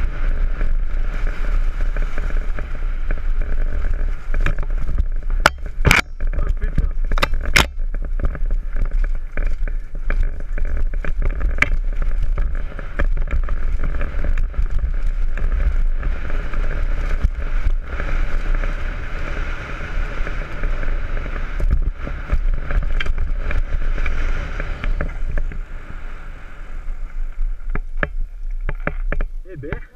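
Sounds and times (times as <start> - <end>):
bike clicks and rattles: 0.0 - 25.7, 27.1 - 29.8
tyre and trail noise: 0.0 - 29.9
wind buffeting microphone: 0.0 - 29.9.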